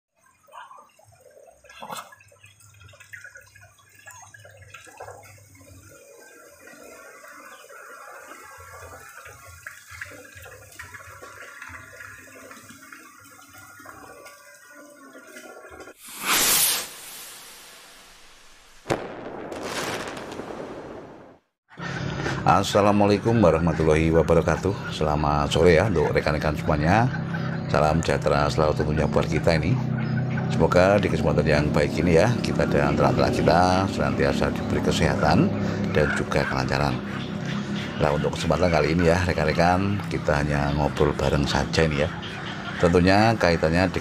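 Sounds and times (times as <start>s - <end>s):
rushing whoosh: 16.0s - 19.6s.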